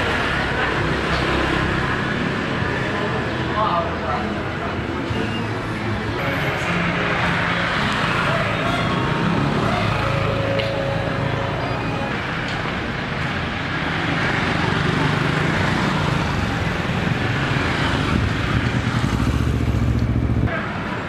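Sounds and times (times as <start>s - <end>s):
motor traffic passing: 0.0s - 21.0s.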